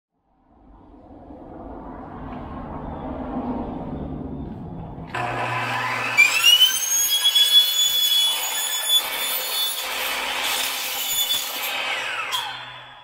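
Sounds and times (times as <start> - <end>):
miter saw cutting panel: 5.1 - 13.0.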